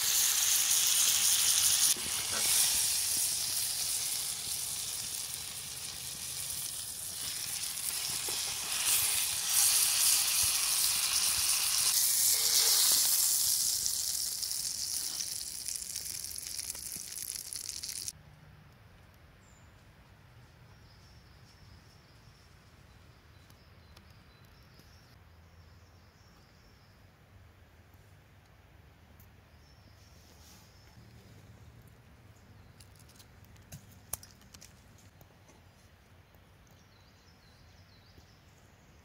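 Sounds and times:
meat sizzling in a skillet: 0.0 - 18.1.

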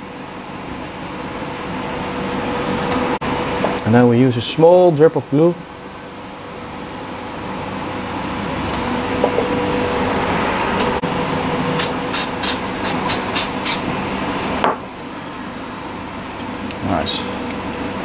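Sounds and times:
aerosol spray puffs: 11.8 - 13.8.

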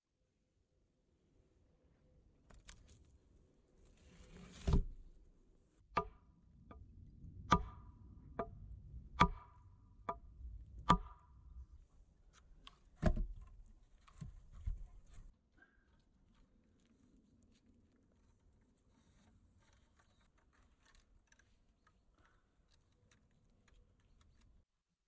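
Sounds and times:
log thudding down: 4.3 - 5.1, 9.2 - 9.5, 10.8 - 11.2, 12.8 - 15.3
hatchet knocking on wooden stake: 7.5 - 7.8, 9.2 - 10.2, 10.8 - 11.3.

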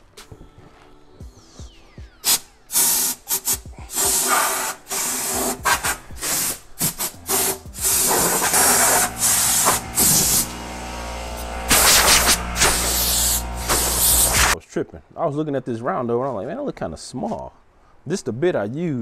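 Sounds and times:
compressed air hissing blasts: 2.2 - 14.6
low steady hum: 7.2 - 14.6.

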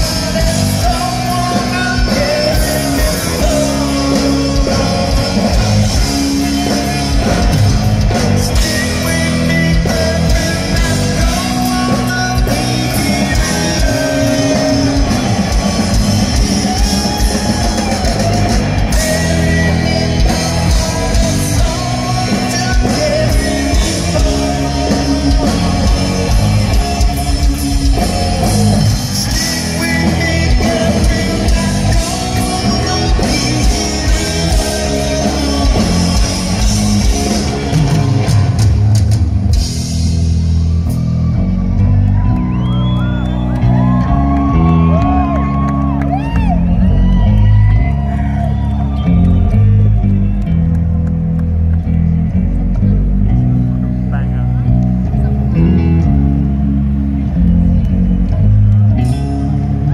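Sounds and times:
person singing: 0.0 - 38.6
drum kit: 0.0 - 51.8
bass guitar: 0.0 - 59.9
electric guitar: 0.0 - 59.9.

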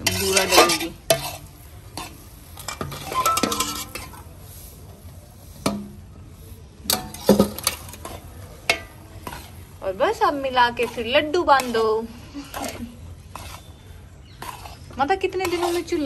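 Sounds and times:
metal spatula scraping pan: 0.0 - 6.0, 6.9 - 16.0
steel bowl knocking pan rim: 2.8 - 4.2.

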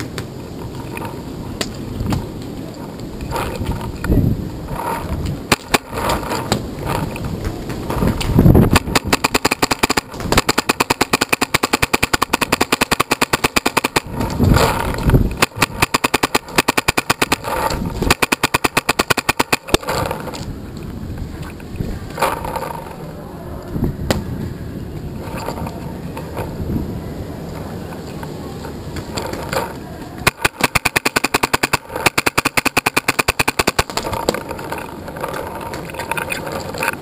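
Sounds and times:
paintball marker rapid firing: 4.8 - 7.1, 8.6 - 20.3, 29.2 - 34.9.

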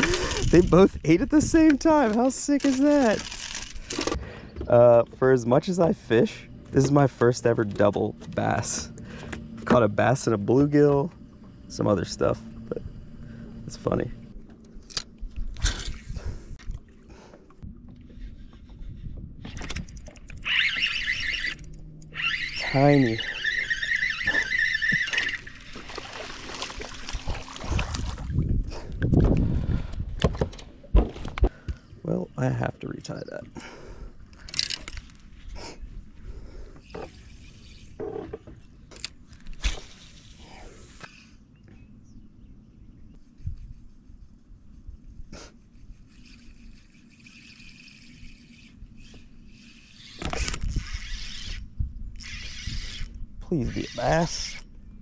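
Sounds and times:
reel clicking and reeling: 0.0 - 11.2, 17.4 - 28.0, 36.8 - 41.4, 43.2 - 54.7
wind on microphone: 15.3 - 16.8, 17.6 - 21.2, 26.8 - 31.4, 43.2 - 46.9.

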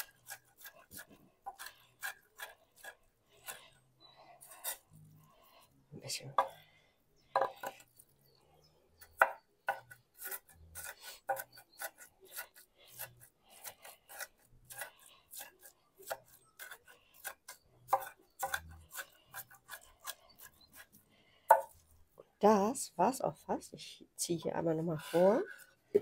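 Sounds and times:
blade chopping and scraping food: 0.0 - 5.7, 7.3 - 8.1, 9.0 - 21.9.

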